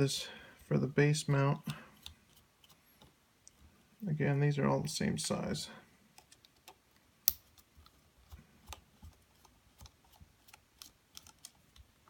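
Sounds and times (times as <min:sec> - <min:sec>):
small clicks and taps of screws: 0:06.1 - 0:12.0.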